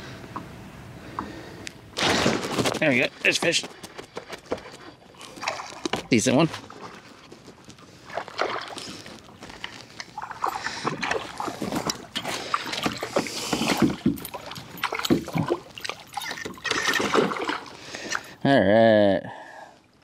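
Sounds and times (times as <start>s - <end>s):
fish splashing at surface: 10.2s - 18.2s.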